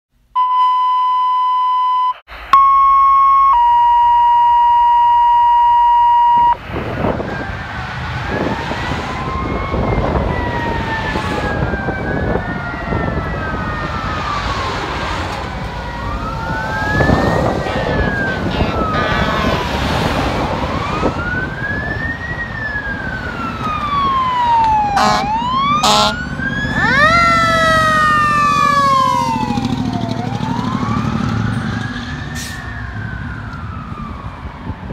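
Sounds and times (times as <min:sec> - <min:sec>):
steady electronic tones: 0:00.4 - 0:06.6
traffic: 0:02.2 - 0:34.9
fire engine sirens wailing: 0:02.3 - 0:34.9
short horn blasts: 0:17.6 - 0:19.7, 0:25.0 - 0:26.2.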